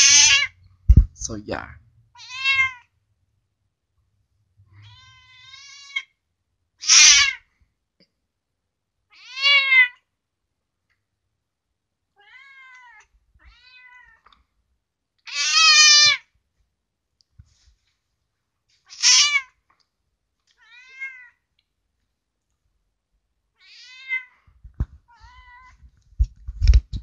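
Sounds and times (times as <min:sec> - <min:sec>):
house cat meowing: 0:00.0 - 0:00.5, 0:02.2 - 0:02.9, 0:04.7 - 0:06.1, 0:09.1 - 0:10.0, 0:12.2 - 0:14.3, 0:15.2 - 0:16.2, 0:18.9 - 0:19.6, 0:20.6 - 0:21.4, 0:23.6 - 0:25.9.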